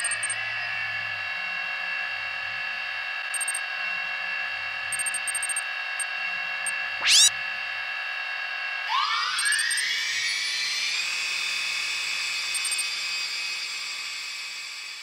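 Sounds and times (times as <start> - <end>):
high electronic beeps: 0.0 - 0.4, 3.4 - 3.6, 5.0 - 5.6, 7.0 - 7.3
electronic drone: 7.0 - 7.4.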